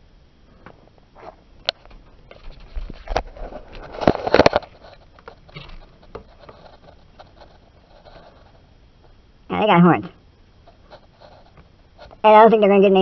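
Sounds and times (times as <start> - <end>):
scraping rustle: 2.3 - 8.6, 10.6 - 12.2.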